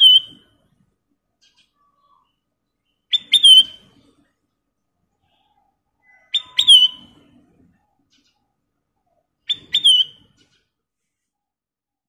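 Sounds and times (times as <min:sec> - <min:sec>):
bulbul whistled calls: 0:00.0 - 0:00.5, 0:03.0 - 0:03.9, 0:05.3 - 0:07.2, 0:09.4 - 0:10.6.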